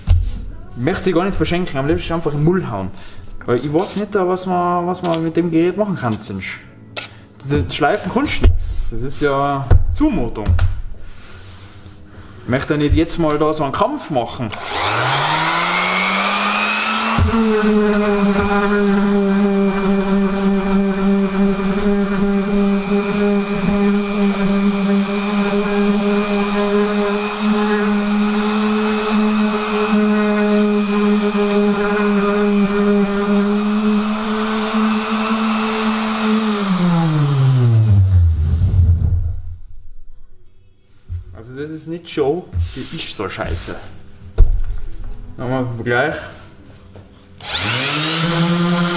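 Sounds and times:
orbital sander on wood: 0:14.5 - 0:38.9, 0:47.4 - 0:48.9.

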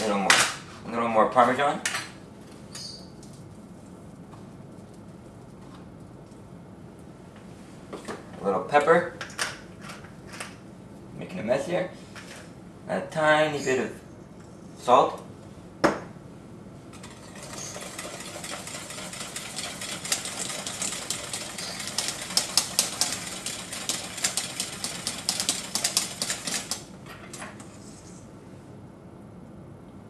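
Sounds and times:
whisk clattering in metal pot: 0:17.0 - 0:26.8.

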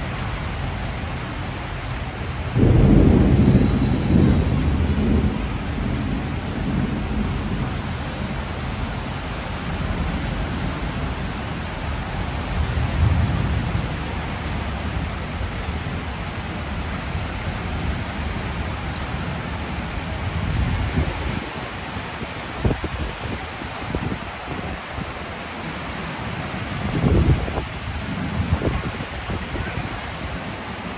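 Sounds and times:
rain on trees and metal roof: 0:00.0 - 0:30.9
thunder rumbling: 0:02.5 - 0:11.6, 0:12.4 - 0:16.1, 0:26.6 - 0:30.1.

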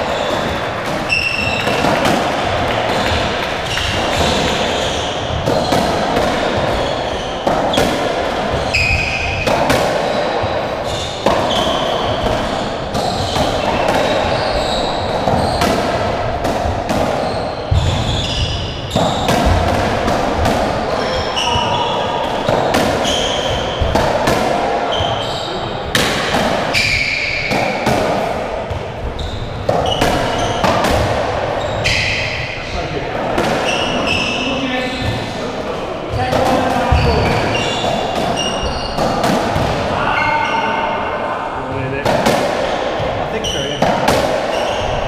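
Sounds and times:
shoes squeaking on wooden floor: 0:00.0 - 0:02.1, 0:02.9 - 0:07.8, 0:08.4 - 0:09.5, 0:10.1 - 0:15.7, 0:17.2 - 0:19.6, 0:21.0 - 0:24.0, 0:26.7 - 0:27.8, 0:28.7 - 0:32.8, 0:33.6 - 0:35.4, 0:36.1 - 0:39.3, 0:44.5 - 0:45.0.

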